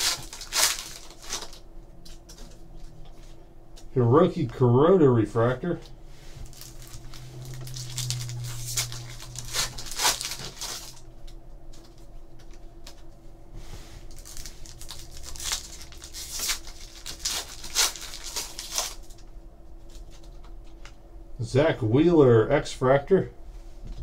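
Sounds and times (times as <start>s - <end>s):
foil wrappers crinkling and tearing: 0.0s - 3.0s, 6.4s - 13.0s, 14.0s - 19.2s.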